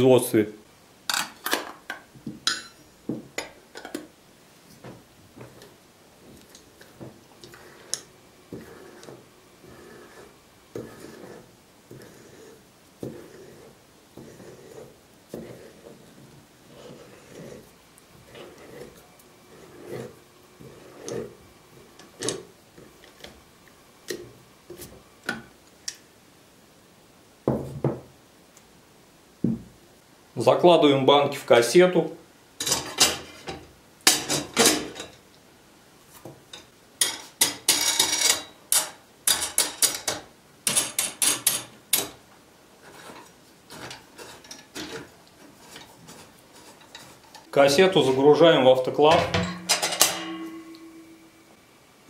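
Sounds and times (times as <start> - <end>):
seamer roller rasping scrape: 7.5 - 16.1, 16.7 - 21.4
metal clinking on glass: 49.2 - 51.2.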